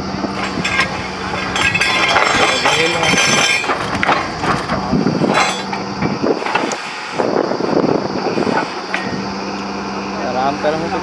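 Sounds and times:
drilling rig engine running: 0:00.0 - 0:11.0
metal tools clanking: 0:00.3 - 0:06.8, 0:08.4 - 0:09.2.

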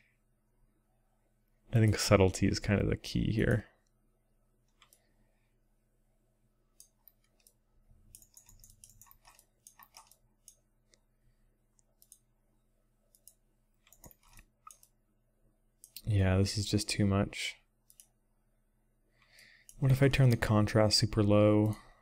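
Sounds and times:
faint low electrical hum: 0:00.0 - 0:22.0
computer mouse clicks: 0:04.7 - 0:05.1, 0:06.7 - 0:11.0, 0:11.7 - 0:12.3, 0:13.1 - 0:15.0, 0:15.8 - 0:16.1, 0:17.8 - 0:18.2, 0:19.3 - 0:20.5, 0:21.6 - 0:21.8.

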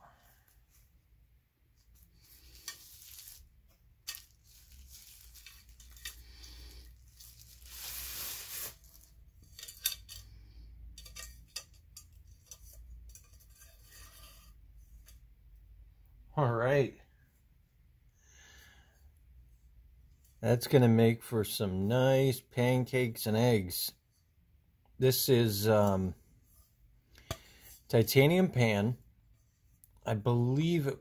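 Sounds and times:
plastic wrapping rustling: 0:01.8 - 0:10.3.

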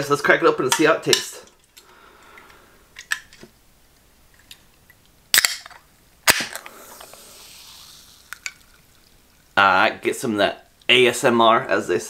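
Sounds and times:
can pull tab snapping: 0:05.3 - 0:06.7
carbonation fizzing hiss: 0:06.5 - 0:10.8.

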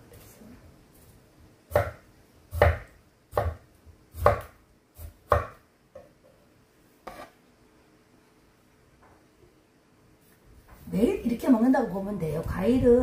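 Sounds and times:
knife cutting on wooden board: 0:07.0 - 0:07.4.

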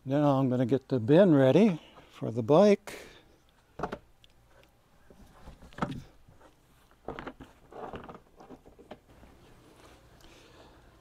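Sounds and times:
plastic scraping: 0:05.2 - 0:09.1.

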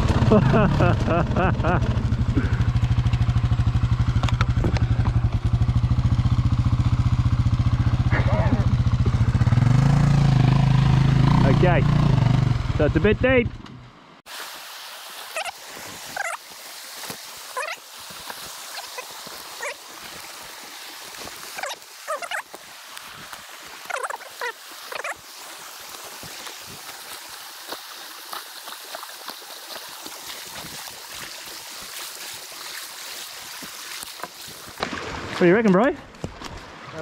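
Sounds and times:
creek water rushing over logs: 0:00.0 - 0:13.1, 0:14.3 - 0:37.0
short pitched calls: 0:15.3 - 0:16.5, 0:17.5 - 0:17.9, 0:18.6 - 0:19.9, 0:21.5 - 0:22.5, 0:23.8 - 0:25.2.

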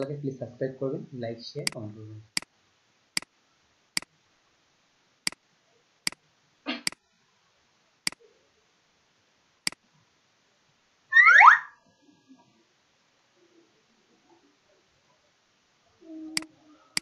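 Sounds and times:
computer mouse clicks: 0:01.6 - 0:01.8.

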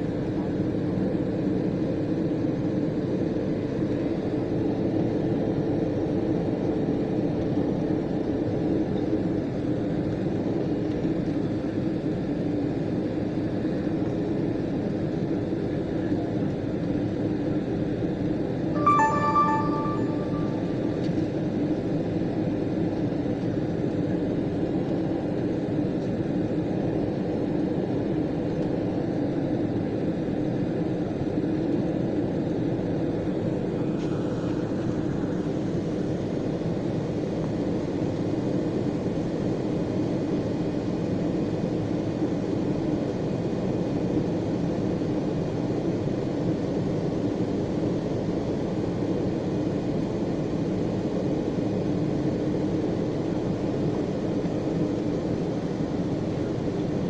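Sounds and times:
airliner cabin engine noise: 0:24.8 - 0:57.0.

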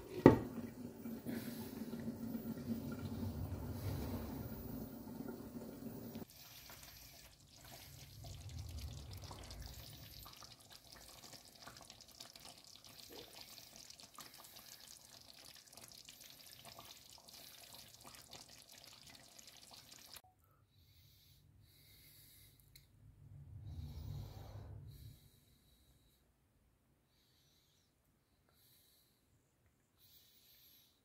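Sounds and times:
sauce bubbling and crackling in pan: 0:00.0 - 0:20.2.

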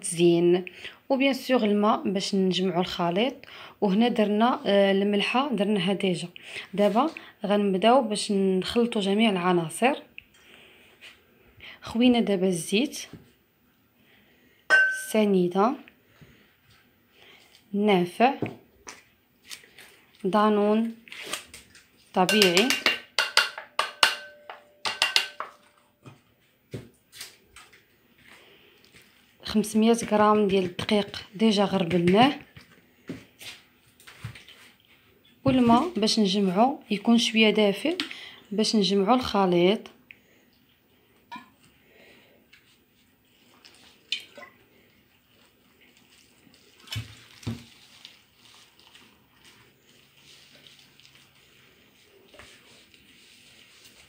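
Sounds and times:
hands mixing dough in glass bowl: 0:14.7 - 0:39.7, 0:42.4 - 0:54.0
plastic pot knocking on glass bowl: 0:22.3 - 0:25.5.

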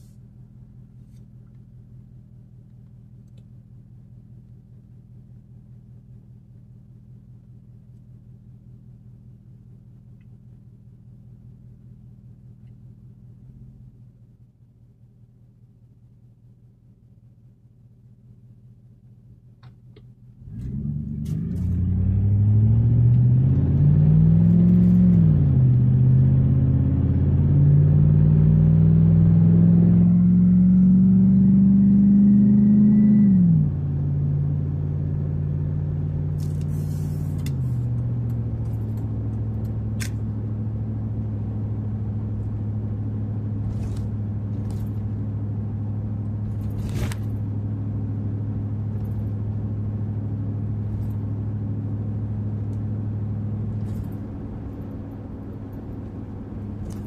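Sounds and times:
truck engine accelerating: 0:20.4 - 0:57.0.

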